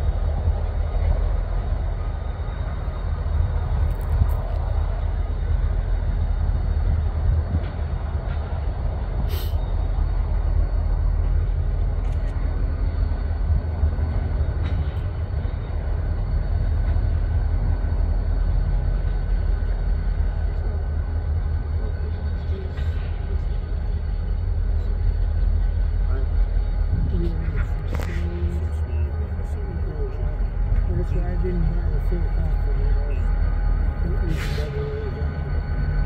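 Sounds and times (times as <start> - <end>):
diesel locomotive rumbling: 0.0 - 36.0.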